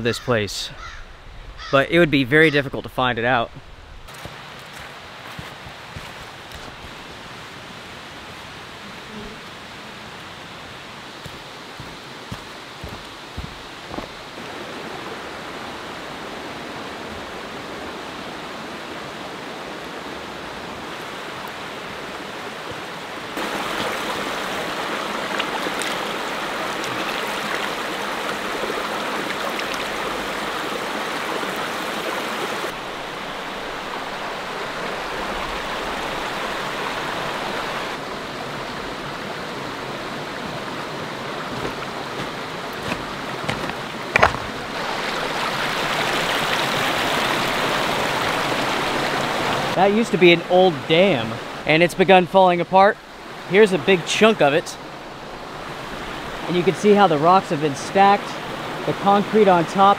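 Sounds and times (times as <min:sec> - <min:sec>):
creek splashing over stones: 0:04.1 - 0:16.6, 0:20.6 - 0:50.2.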